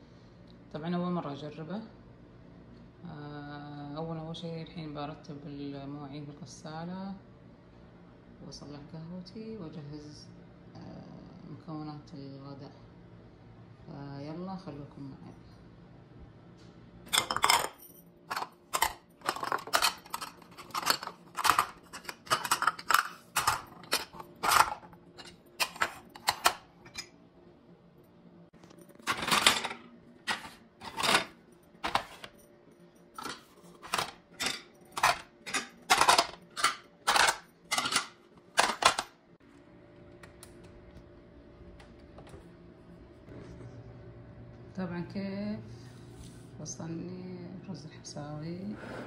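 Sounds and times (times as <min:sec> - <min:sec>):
ceramic plates clinking: 0:17.1 - 0:27.1, 0:29.0 - 0:32.3, 0:33.2 - 0:39.1.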